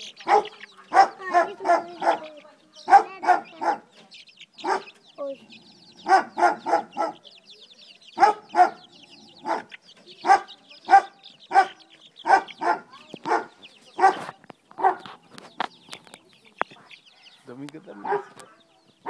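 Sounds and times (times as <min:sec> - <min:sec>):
chicks peeping: 0:00.0 - 0:19.0
dog barking: 0:00.2 - 0:03.9, 0:04.6 - 0:05.0, 0:06.0 - 0:07.3, 0:08.2 - 0:15.1, 0:18.0 - 0:18.4.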